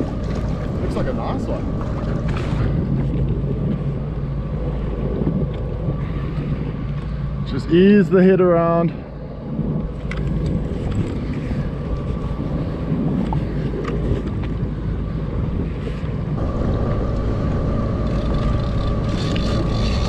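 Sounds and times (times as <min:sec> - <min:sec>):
sea water slapping: 0:00.0 - 0:07.4
wind buffeting microphone: 0:00.0 - 0:20.0.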